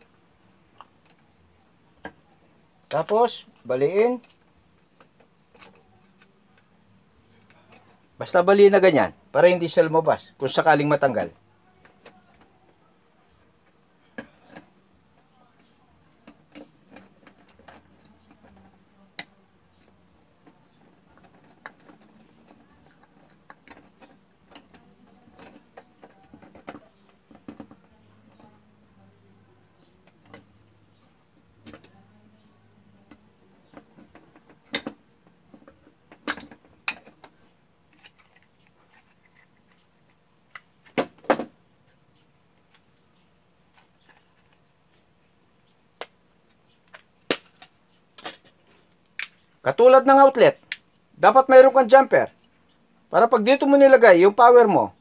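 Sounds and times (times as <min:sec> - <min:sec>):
plastic parts handled: 0:16.0 - 0:28.6, 0:33.0 - 0:41.5, 0:42.5 - 0:45.0.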